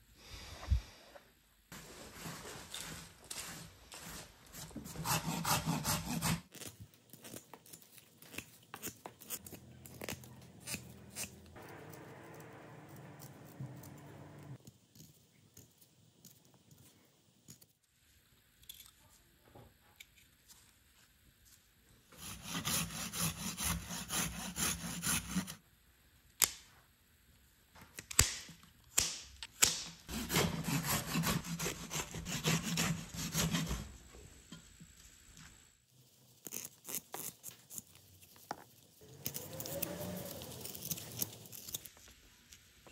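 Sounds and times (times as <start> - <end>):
knife shaving wood: 2.2 - 16.4, 22.1 - 25.6, 30.1 - 34.0, 36.1 - 42.2
hand saw cutting branch: 5.0 - 6.5, 22.2 - 25.6, 30.1 - 33.9.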